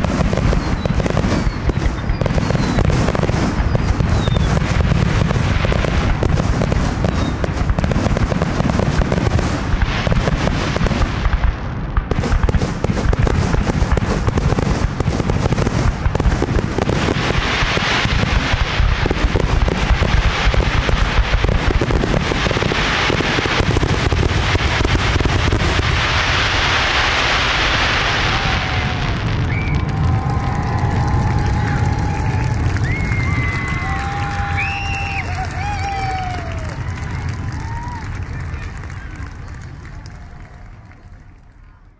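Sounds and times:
firework shell bursts crackling: 0:00.0 - 0:28.1.

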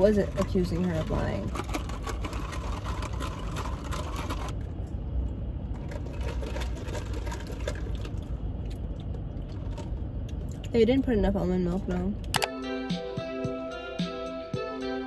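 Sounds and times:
ice rattling in plastic cups: 0:00.0 - 0:04.6, 0:05.7 - 0:10.0.

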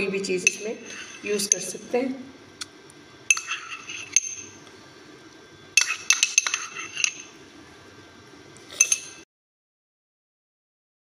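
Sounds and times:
utensils clinking on glass bowl: 0:00.4 - 0:01.8, 0:03.3 - 0:04.6, 0:05.8 - 0:07.4, 0:08.8 - 0:09.2.

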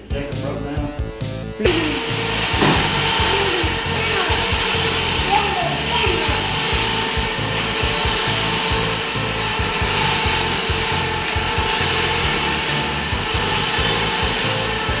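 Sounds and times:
electric winch motor whining: 0:01.6 - 0:15.0.

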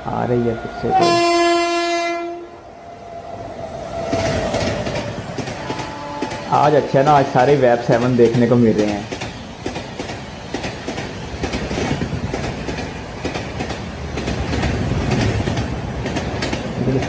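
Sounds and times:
train coaches rumbling: 0:00.0 - 0:17.0
wheels clattering over rail joints: 0:04.1 - 0:17.0.

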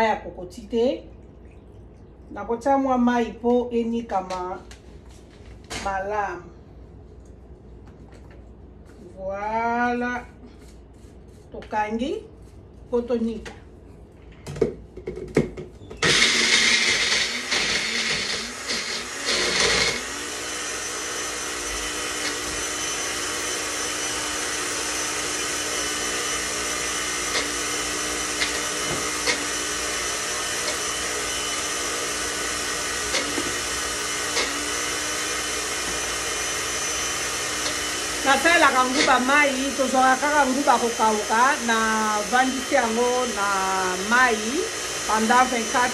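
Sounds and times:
blender motor chopping: 0:16.0 - 0:45.9.

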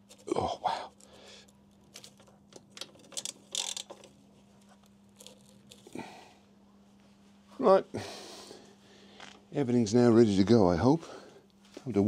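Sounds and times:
faint steady hum: 0:00.0 - 0:12.0
ratchet wrench clicking: 0:03.1 - 0:04.0.

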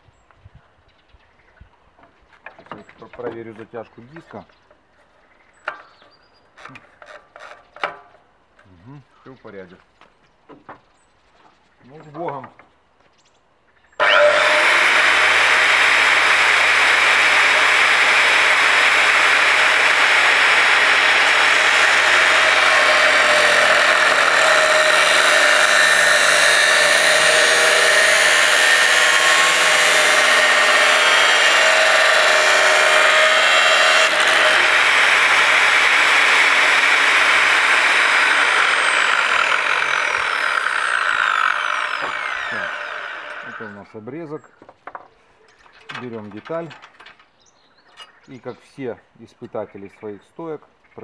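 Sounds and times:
angle grinder running: 0:14.0 - 0:43.7
grinder cutting steel tube: 0:14.0 - 0:43.8.

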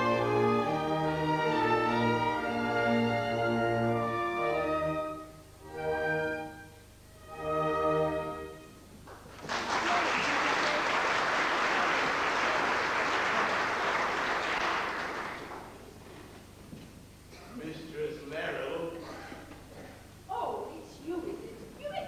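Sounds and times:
orchestra holding chords: 0:00.0 - 0:08.9
audience applause: 0:09.1 - 0:16.0.

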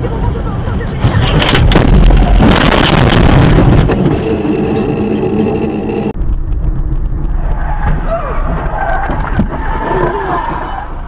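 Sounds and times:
rough road and driving noise: 0:00.0 - 0:11.0
car driving hum: 0:01.4 - 0:11.0
steady pitched tone: 0:03.1 - 0:07.3.

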